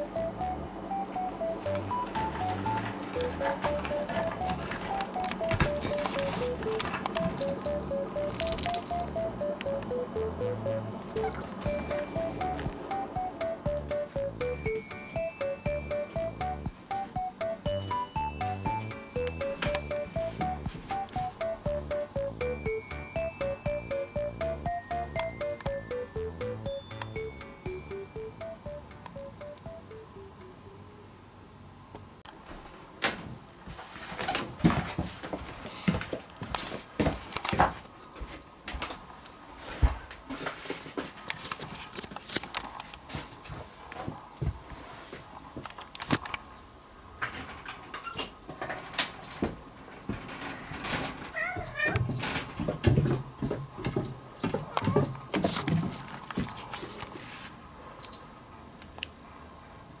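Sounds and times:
collar charm jingling: 7.1s - 9.4s, 11.2s - 11.9s, 51.8s - 57.0s
footsteps on wooden stairs: 32.5s - 39.0s, 51.5s - 56.7s
paws thudding on wooden stairs: 51.4s - 56.6s.

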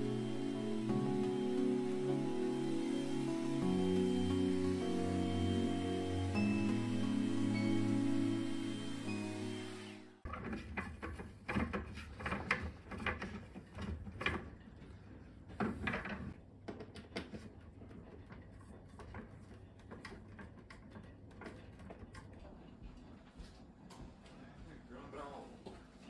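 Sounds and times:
background music: 0.0s - 10.2s.

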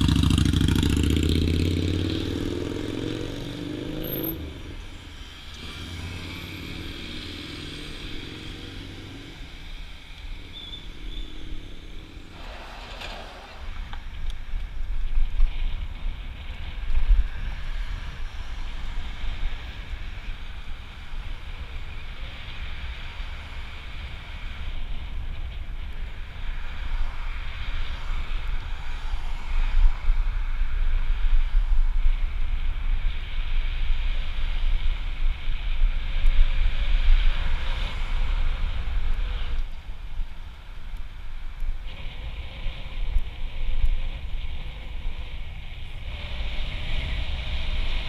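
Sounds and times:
rushing road noise: 0.0s - 48.0s.

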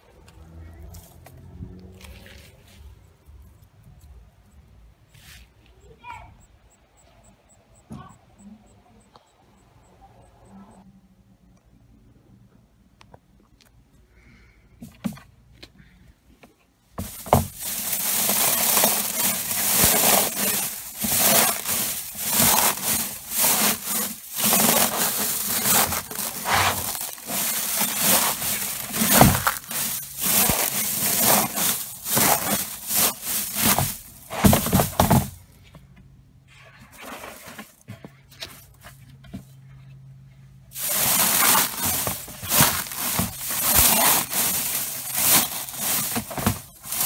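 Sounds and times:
dry stems crunching and crackling: 17.0s - 34.3s, 40.7s - 47.0s
boot stomping on dry plants: 17.0s - 35.2s, 40.8s - 47.0s.

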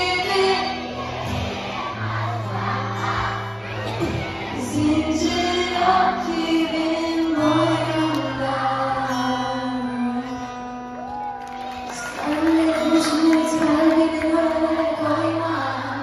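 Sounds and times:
acoustic guitar: 0.0s - 16.0s
drums: 3.8s - 4.6s
person singing: 4.5s - 10.8s, 11.9s - 16.0s.

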